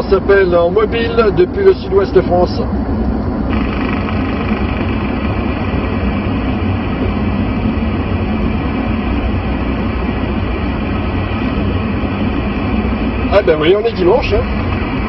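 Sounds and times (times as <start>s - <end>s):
vehicle road rumble: 0.0s - 15.0s
radio static hiss: 3.5s - 7.4s.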